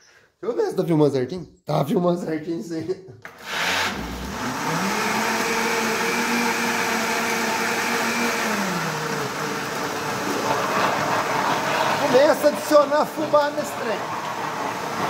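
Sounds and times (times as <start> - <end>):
blender motor running: 3.3 - 15.0.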